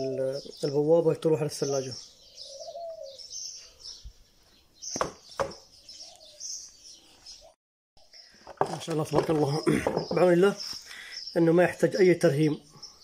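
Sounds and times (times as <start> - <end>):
small birds chirping: 0.0 - 13.0
sharp knocks: 5.0 - 5.6.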